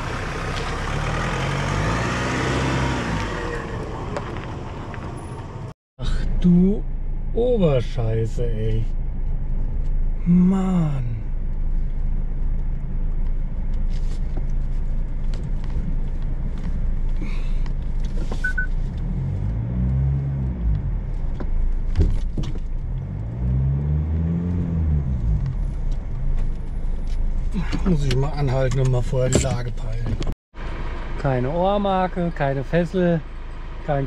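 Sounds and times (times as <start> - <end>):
vehicle engine revving: 0.0 - 5.7, 18.4 - 21.5, 22.8 - 27.2
tyres on a dirt track: 0.0 - 34.0.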